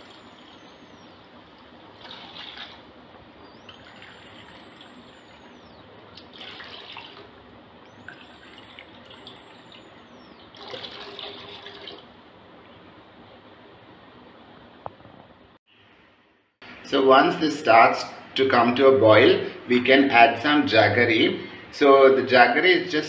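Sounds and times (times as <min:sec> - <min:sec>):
water pouring into liquid: 0:06.2 - 0:07.3, 0:08.1 - 0:09.8, 0:10.5 - 0:12.0.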